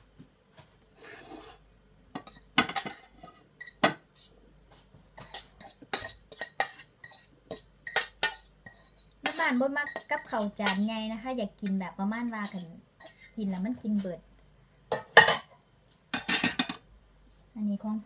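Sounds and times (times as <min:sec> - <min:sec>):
metal spoon scraping saucepan: 0:01.0 - 0:01.6, 0:02.2 - 0:04.4, 0:05.2 - 0:10.9, 0:11.6 - 0:13.4.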